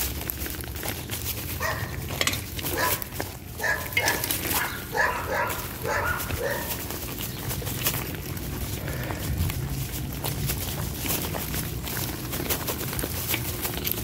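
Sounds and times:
dog barking: 1.6 - 1.9, 2.7 - 3.0, 3.6 - 6.8.

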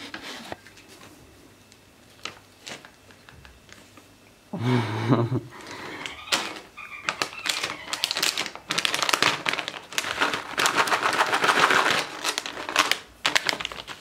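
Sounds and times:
foil bag crinkling: 2.0 - 3.9, 5.6 - 14.0.

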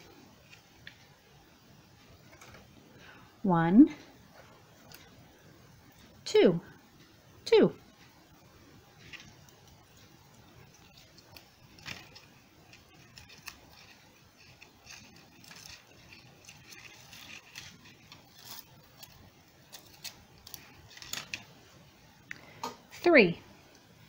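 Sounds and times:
paper ribbon rustling: 8.9 - 21.5
dry twigs clicking: 9.0 - 21.5.

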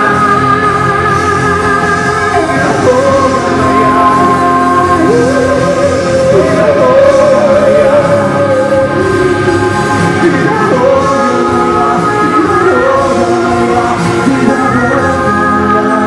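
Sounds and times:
band playing: 0.0 - 16.0
person singing slow melody: 0.0 - 16.0.

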